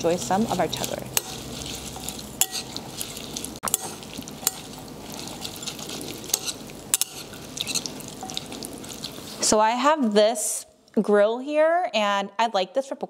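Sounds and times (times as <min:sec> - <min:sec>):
wet greens rustling: 0:00.0 - 0:09.6
chopsticks clinking against bowl: 0:00.8 - 0:09.1.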